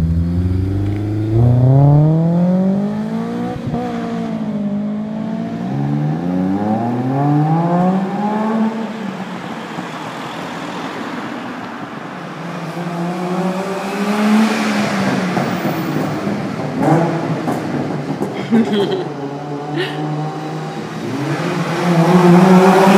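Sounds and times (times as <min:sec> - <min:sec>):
car engine accelerating: 0:00.0 - 0:09.2, 0:19.2 - 0:22.9.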